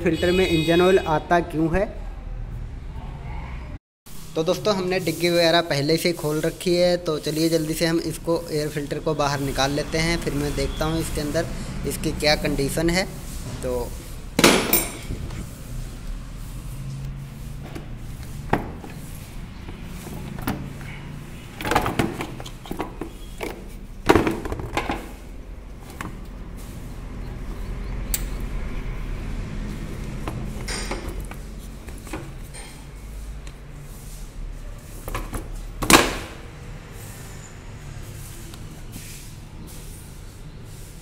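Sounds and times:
plastic knocks and rattles: 21.6s - 25.2s.

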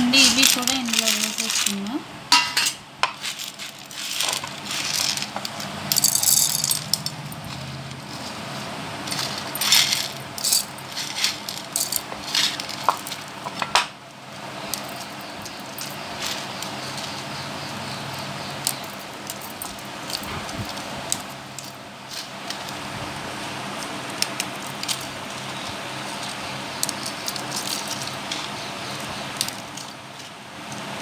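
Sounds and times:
seeds rattling in steel jar: 0.0s - 2.4s, 3.1s - 13.7s, 14.5s - 22.8s, 23.7s - 30.9s.

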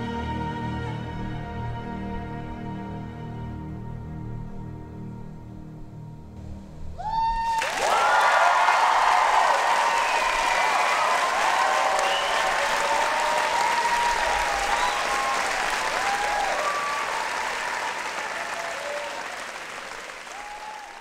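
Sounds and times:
cheers and whoops: 7.0s - 21.0s
audience applauding: 7.4s - 21.0s.

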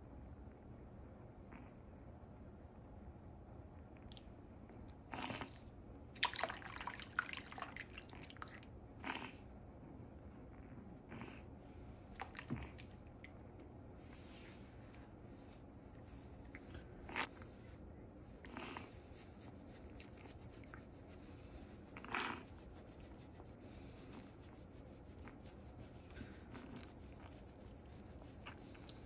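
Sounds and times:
brush scrubbing wet fur: 5.4s - 8.7s, 12.2s - 29.0s.

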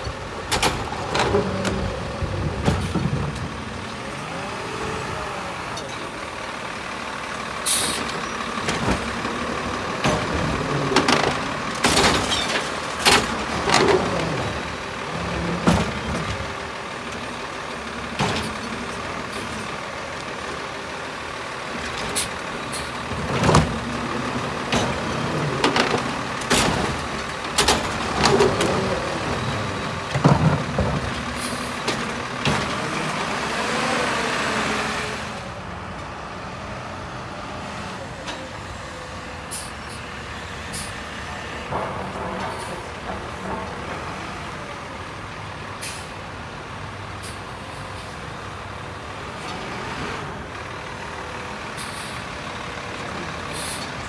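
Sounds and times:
carts banging and clattering: 0.0s - 4.7s, 7.8s - 20.5s, 21.6s - 34.9s, 41.2s - 45.7s
diesel engine running: 0.0s - 54.0s.

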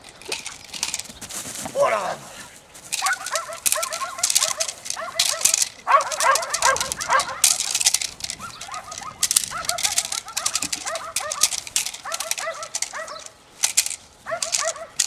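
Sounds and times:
rustling and scuffing: 0.3s - 15.0s
dog barking and yelping: 3.0s - 7.8s, 8.4s - 13.3s, 14.3s - 15.0s.

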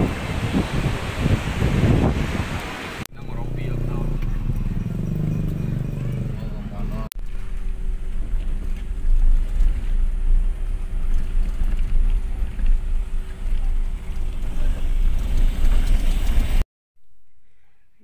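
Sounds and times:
wind rumbling on microphone: 0.0s - 3.0s
motorcycle engine running: 3.2s - 16.6s.

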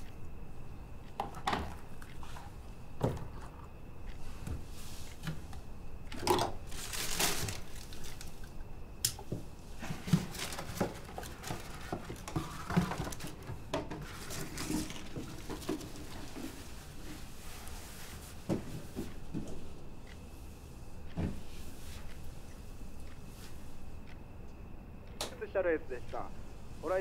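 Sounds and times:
paper rustling and crinkling: 6.7s - 8.4s, 9.8s - 13.4s, 14.0s - 16.6s.

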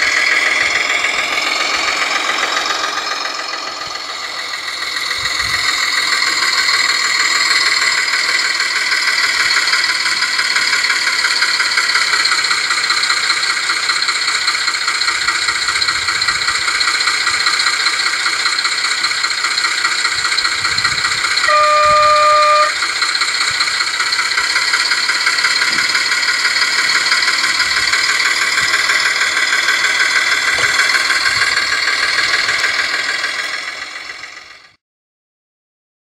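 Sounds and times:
diesel engine idling through speaker: 0.0s - 34.8s
train horn blast: 21.4s - 22.8s.

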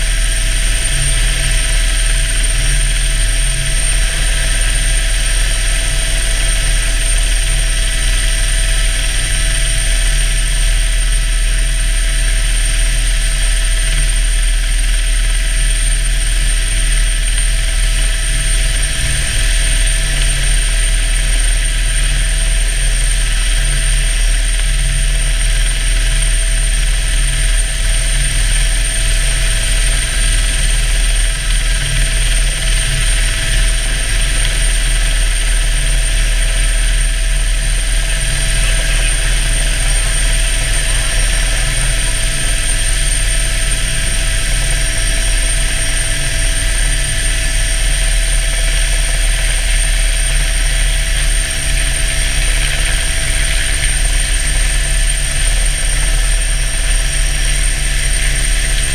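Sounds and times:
helicopter engine whine: 0.0s - 58.9s
helicopter rotor beat: 0.0s - 58.9s.

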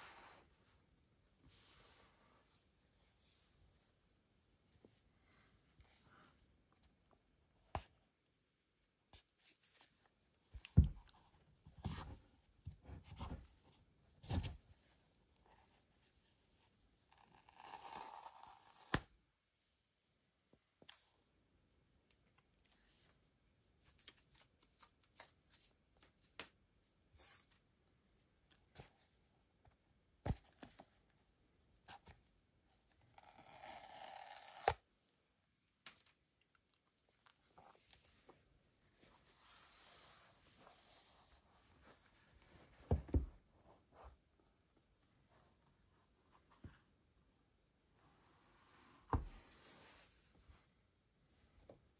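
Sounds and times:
paper tear strip ripping: 33.2s - 34.8s.

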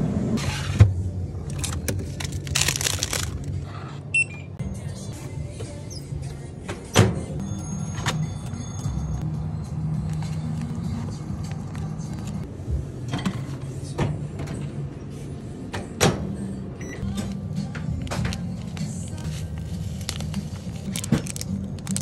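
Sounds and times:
plastic packaging crinkling: 1.5s - 3.6s, 18.3s - 22.0s.

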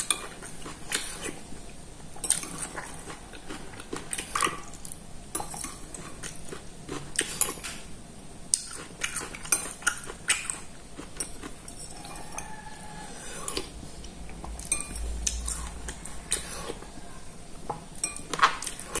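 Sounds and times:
spoon clinking against bowl: 18.0s - 18.6s.

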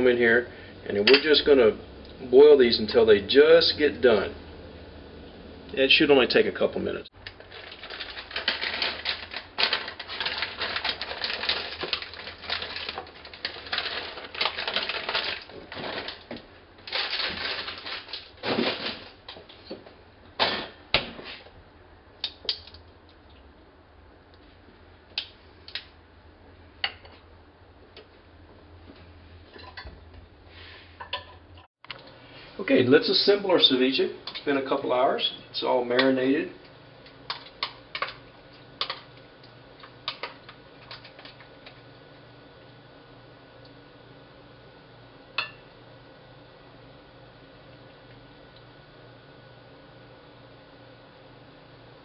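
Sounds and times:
water boiling with popping bubbles: 7.2s - 18.5s, 36.0s - 44.3s, 46.9s - 50.0s.

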